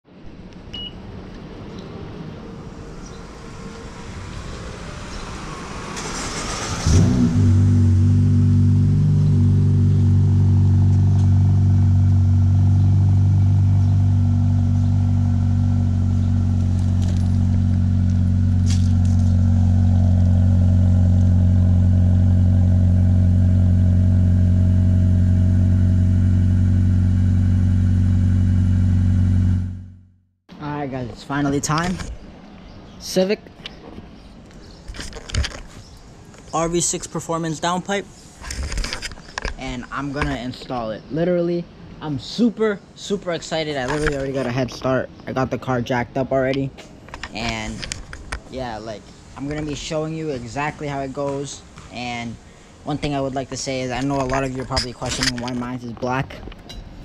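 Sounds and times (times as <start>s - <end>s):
car engine starting and idling: 3.7s - 30.1s.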